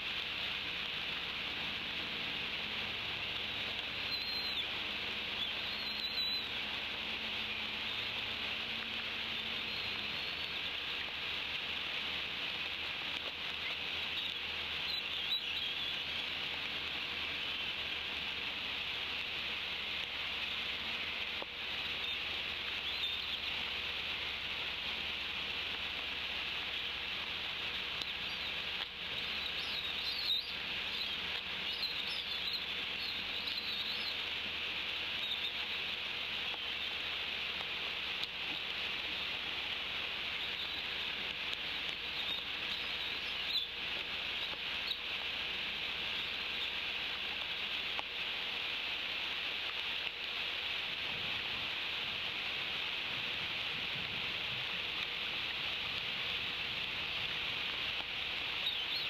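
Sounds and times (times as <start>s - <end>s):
steady rain hiss: 0.0s - 59.0s
high bird chirps: 4.0s - 4.8s, 5.4s - 6.6s, 9.3s - 11.1s, 13.6s - 16.2s, 21.8s - 23.5s, 28.0s - 34.3s, 42.0s - 45.1s, 58.6s - 59.0s.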